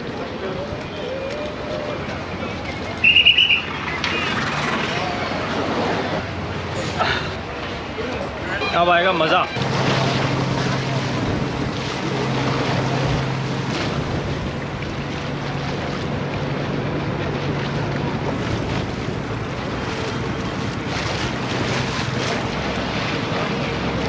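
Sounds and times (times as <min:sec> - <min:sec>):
ferry engine hum: 0:00.0 - 0:24.0
water splashing along hull: 0:00.0 - 0:24.0
wind buffeting microphone: 0:09.8 - 0:24.0.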